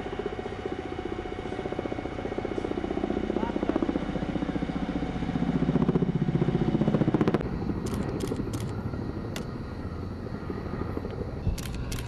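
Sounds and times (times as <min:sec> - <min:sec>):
helicopter rotor thudding: 0:05.5 - 0:09.6, 0:11.1 - 0:12.0
sharp clicks: 0:07.8 - 0:09.5, 0:11.5 - 0:12.0.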